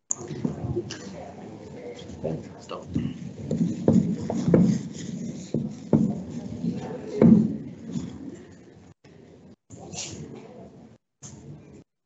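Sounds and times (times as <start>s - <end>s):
rubbing and scraping on desk: 2.0s - 8.7s
objects knocking and clattering: 2.9s - 8.8s.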